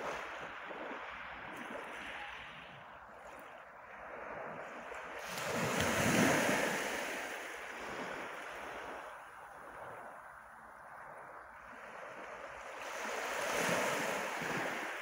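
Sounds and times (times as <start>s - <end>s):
waves breaking on pebbles: 4.5s - 9.1s.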